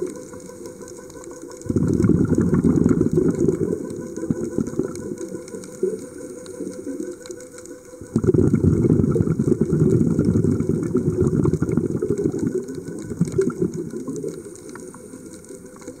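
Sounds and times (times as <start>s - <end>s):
underwater exhaled breath bubbling: 1.5s - 7.3s, 8.0s - 16.0s.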